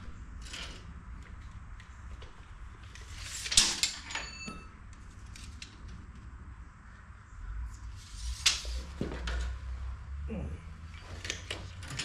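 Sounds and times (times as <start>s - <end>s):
metallic ring: 3.9s - 4.8s.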